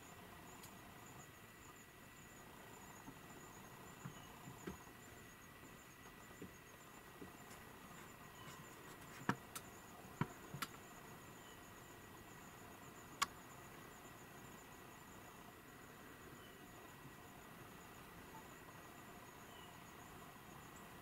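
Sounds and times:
high-pitched insect trilling: 0.0 - 21.0
sharp clicks: 9.0 - 10.8, 13.2 - 13.4.

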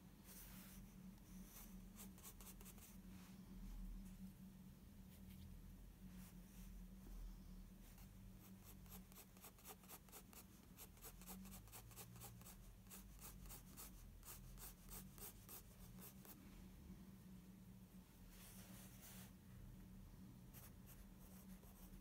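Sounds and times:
pencil scratching on paper: 2.0 - 2.9, 8.6 - 16.4.

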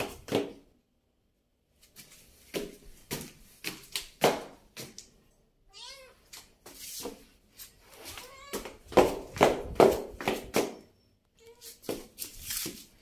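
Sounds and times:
kitten meowing: 5.7 - 6.2, 8.1 - 8.7.

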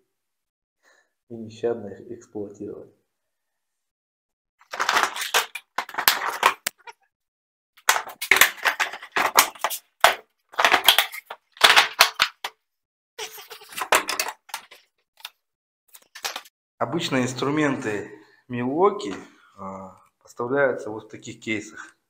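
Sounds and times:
plastic tool boxes clattering: 4.6 - 6.8, 7.8 - 12.5, 13.7 - 14.8, 16.1 - 16.5.

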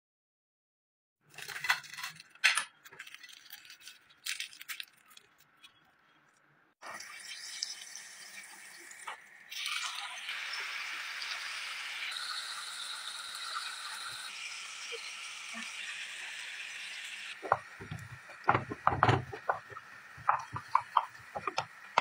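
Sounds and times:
fish frying in a pan: 6.8 - 22.0.

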